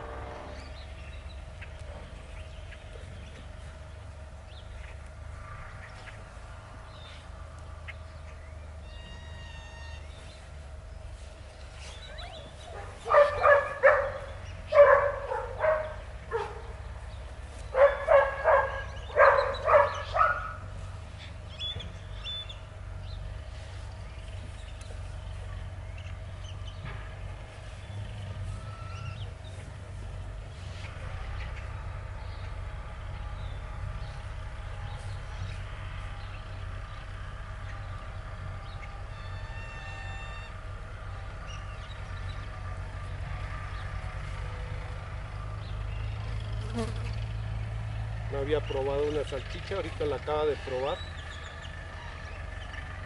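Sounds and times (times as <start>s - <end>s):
puppy yelping barks: 12.1s - 16.7s, 17.8s - 20.6s.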